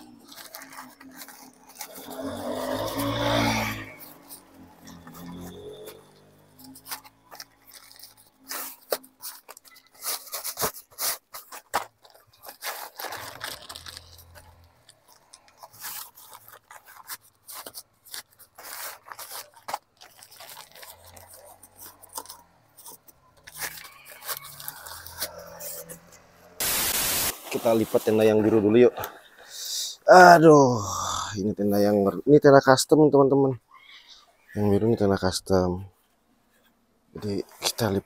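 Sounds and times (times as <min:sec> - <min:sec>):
tent fabric rustling: 0:00.0 - 0:26.1
bag scraping on concrete: 0:00.0 - 0:28.4.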